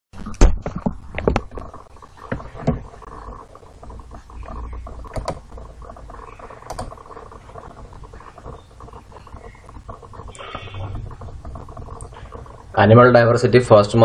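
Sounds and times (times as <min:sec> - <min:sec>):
faint hum: 0:00.2 - 0:14.0
computer mouse clicks: 0:04.1 - 0:12.5.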